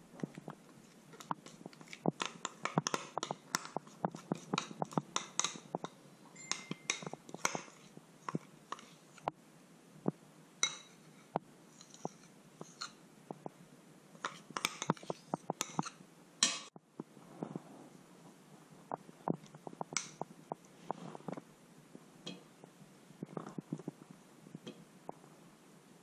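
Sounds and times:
metal spoon scraping glass and steel: 0:06.4 - 0:07.1.

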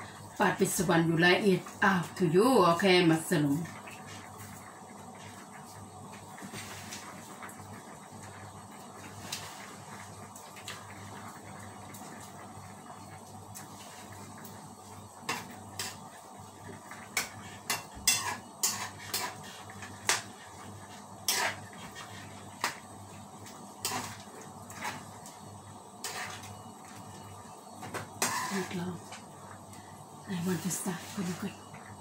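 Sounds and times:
metal spoon scraping frying pan: 0:17.2 - 0:20.4, 0:21.2 - 0:22.8, 0:23.8 - 0:25.1, 0:26.0 - 0:26.5, 0:28.2 - 0:28.8.

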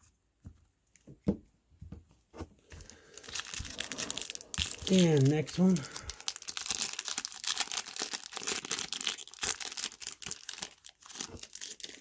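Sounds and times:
wrapper tearing and crinkling: 0:02.8 - 0:12.0.

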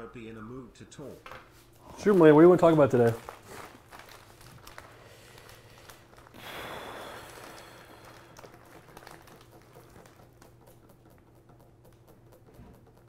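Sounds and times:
plastic bag crinkling: 0:01.8 - 0:10.8.

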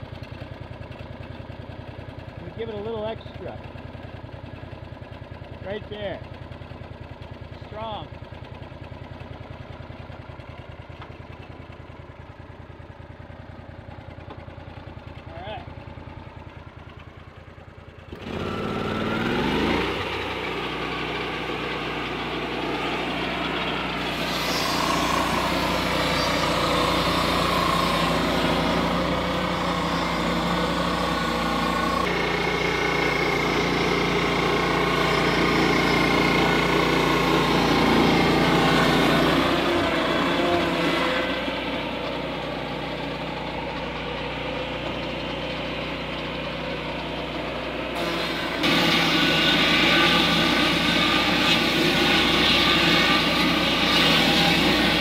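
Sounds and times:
sawmill engine revving: 0:00.7 - 0:12.5, 0:14.0 - 0:55.0
circular saw blade cutting log: 0:18.1 - 0:55.0.

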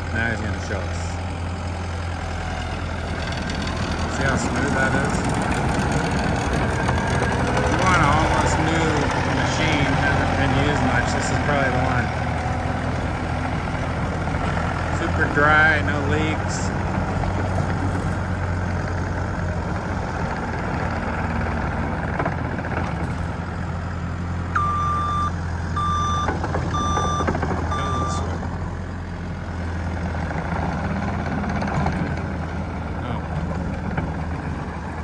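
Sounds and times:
diesel engine running: 0:00.0 - 0:35.0
backup alarm beeps: 0:24.6 - 0:28.3.

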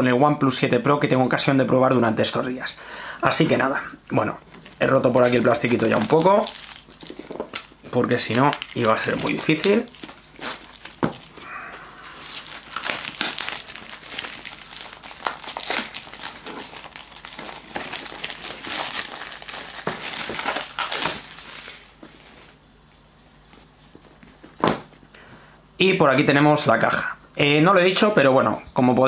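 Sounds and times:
plastic wrap crinkling and ripping: 0:04.2 - 0:24.9.

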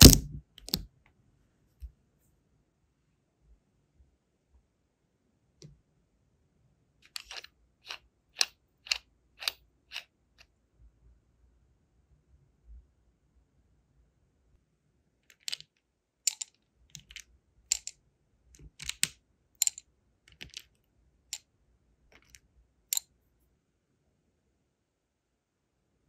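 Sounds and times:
wax beads clicking on metal: 0:07.1 - 0:10.1, 0:16.3 - 0:17.9, 0:18.6 - 0:20.7.

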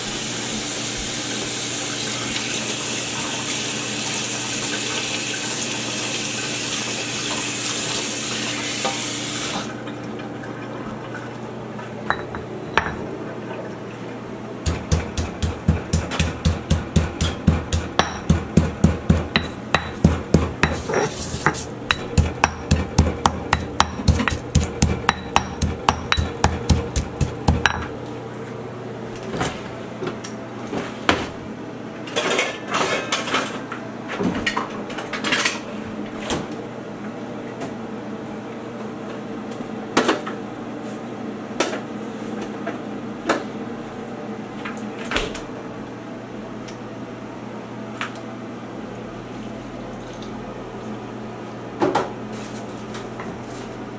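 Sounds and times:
pestle pounding in stone mortar: 0:14.6 - 0:27.9
kitchenware knocking and clattering: 0:14.7 - 0:27.9.

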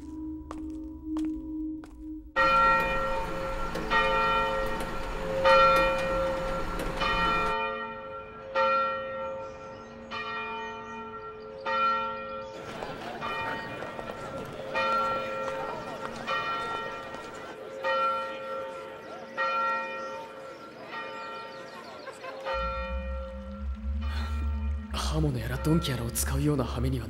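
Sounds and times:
large bell tolling: 0:02.4 - 0:21.6, 0:22.5 - 0:27.0
crowd noise: 0:12.6 - 0:24.0.

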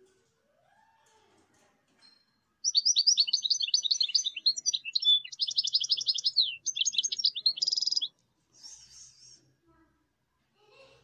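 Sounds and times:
bird twittering song: 0:02.6 - 0:08.2.

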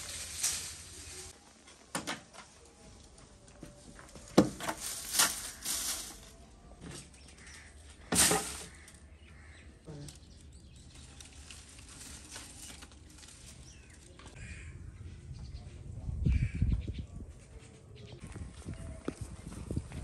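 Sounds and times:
dry palm fronds rustling: 0:00.0 - 0:14.5.

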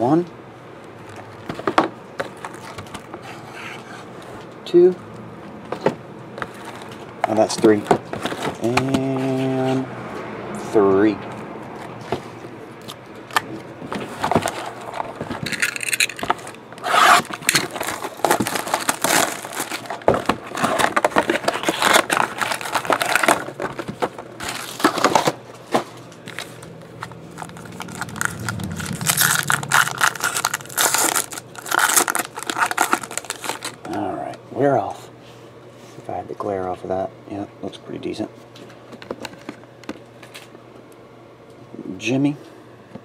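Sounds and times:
foil wrapper crinkling and tearing: 0:14.7 - 0:25.3, 0:26.3 - 0:33.9.

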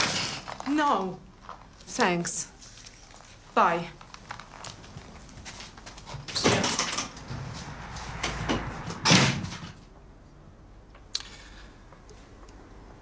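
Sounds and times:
door opening and shutting: 0:06.0 - 0:07.5, 0:08.1 - 0:09.8.

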